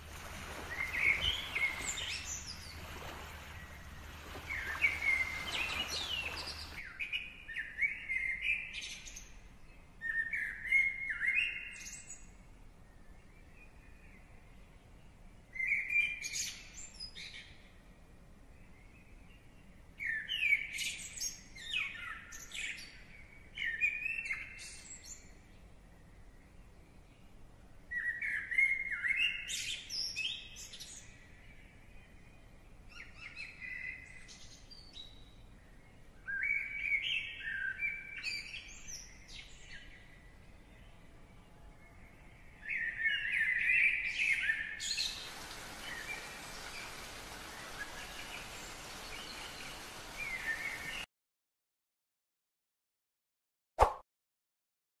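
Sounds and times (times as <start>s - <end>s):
steady hiss: 0.0s - 6.8s, 44.9s - 51.0s
songbird singing: 0.0s - 51.1s.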